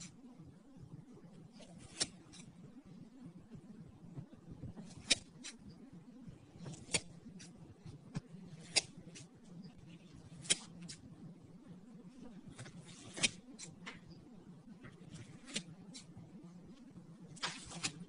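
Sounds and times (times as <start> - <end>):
faint low hum: 0.0 - 18.0
scissors snipping slime: 1.8 - 2.5, 4.8 - 5.6, 6.7 - 7.6, 8.6 - 9.3, 10.4 - 11.0.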